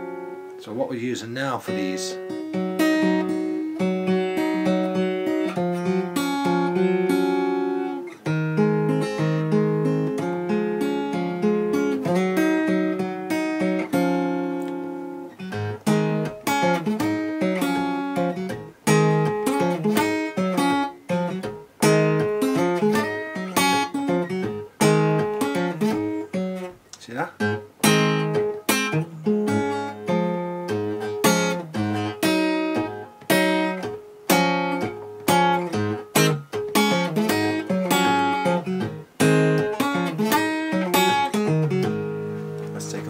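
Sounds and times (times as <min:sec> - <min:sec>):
acoustic blues guitar: 0:00.0 - 0:43.0.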